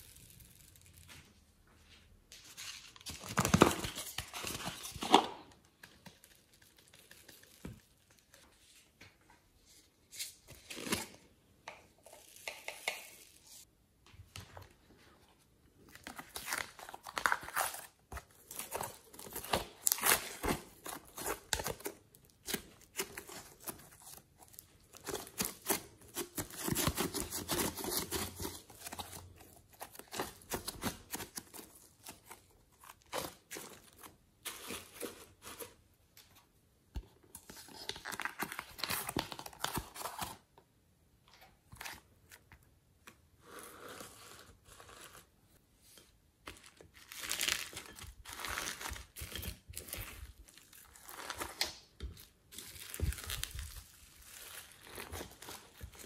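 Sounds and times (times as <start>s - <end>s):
slime peeling and crackling: 16.0s - 28.8s, 46.9s - 51.8s.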